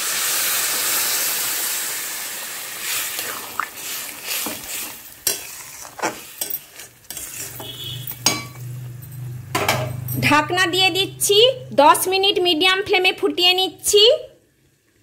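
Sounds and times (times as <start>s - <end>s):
water sizzling in hot oil: 0.0s - 8.5s
metal spatula scraping a pan: 3.8s - 8.6s.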